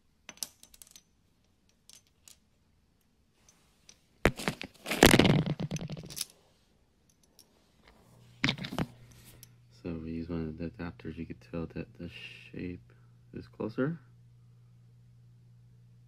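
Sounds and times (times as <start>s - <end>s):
small metal parts clicking and clattering: 0.3s - 2.4s, 3.5s - 6.4s, 7.0s - 7.5s.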